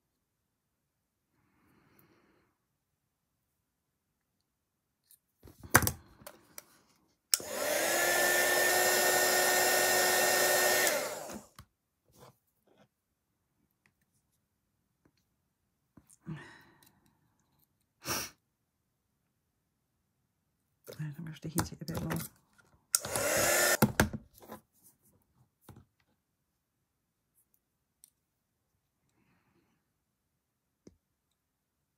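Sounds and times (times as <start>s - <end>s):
heat gun fan whining: 7.3s - 11.5s, 22.9s - 23.9s.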